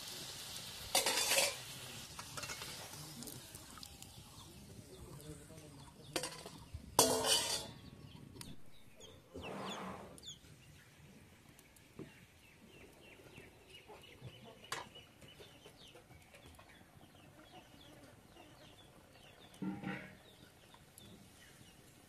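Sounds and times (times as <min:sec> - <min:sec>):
chickens clucking: 0:12.0 - 0:21.7.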